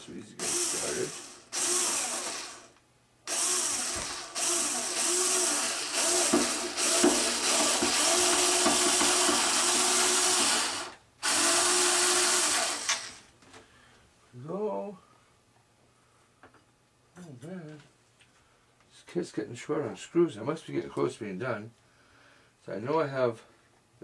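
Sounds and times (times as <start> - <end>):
electric screwdriver motor whining: 0.4 - 2.7, 3.3 - 13.2.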